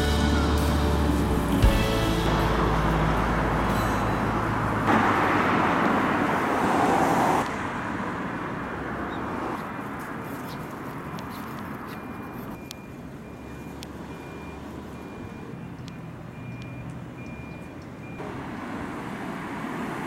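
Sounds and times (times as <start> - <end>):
loud vehicle passing: 0.0 - 11.7
cars driving past: 0.0 - 20.0.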